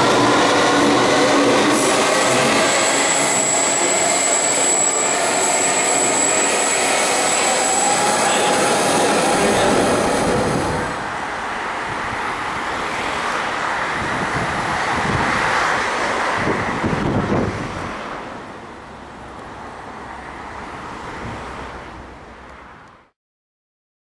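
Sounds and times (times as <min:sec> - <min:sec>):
traffic hum: 0:07.4 - 0:23.1.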